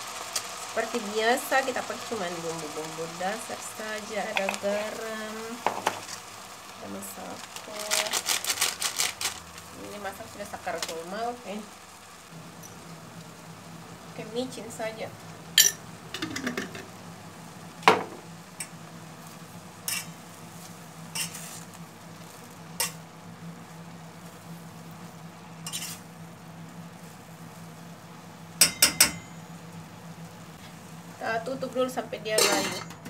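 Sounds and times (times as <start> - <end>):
greens sizzling: 0.0 - 33.0
metal spoon scraping a pot: 21.1 - 21.6, 25.7 - 26.0.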